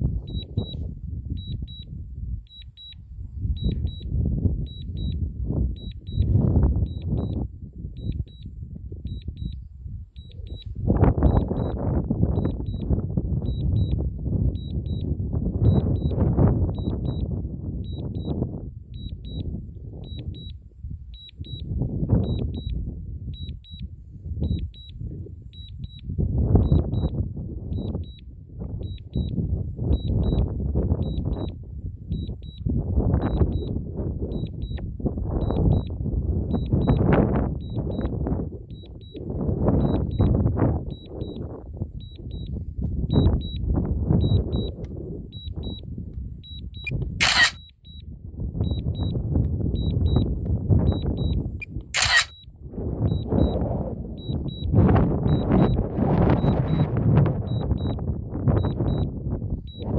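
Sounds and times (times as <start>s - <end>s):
high double beeps: 0.2s - 0.8s, 3.6s - 5.2s, 5.8s - 7.4s, 8.0s - 8.5s, 10.2s - 17.3s, 46.8s - 48.0s, 52.0s - 52.4s.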